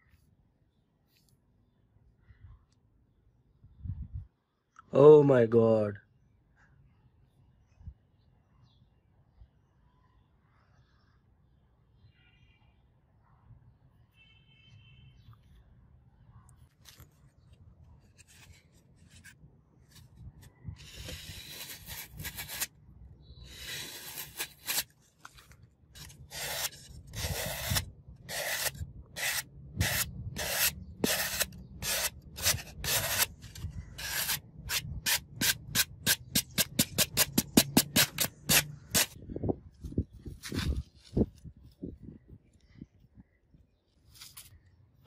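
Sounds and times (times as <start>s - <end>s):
knife slicing floral foam: 20.8s - 22.7s, 23.4s - 25.4s, 26.0s - 39.2s.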